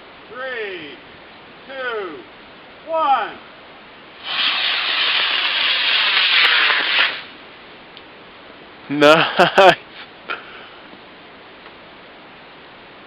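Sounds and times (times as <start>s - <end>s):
rocket motor rushing hiss: 4.2s - 7.4s.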